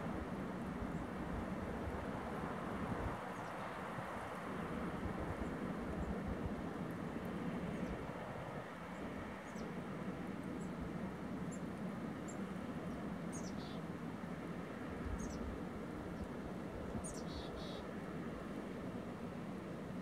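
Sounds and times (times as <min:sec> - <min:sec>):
small bird chirping: 0:17.1 - 0:17.8.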